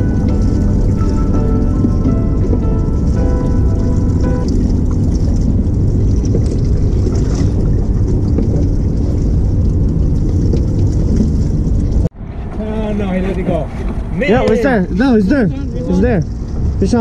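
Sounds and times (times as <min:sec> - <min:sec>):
background music: 0:00.0 - 0:05.0
water noise: 0:00.0 - 0:17.0
wind buffeting microphone: 0:00.0 - 0:17.0.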